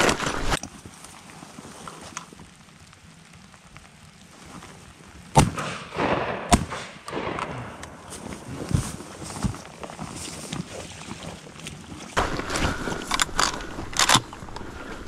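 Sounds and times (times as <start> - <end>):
shotgun shots: 5.4 - 8.0.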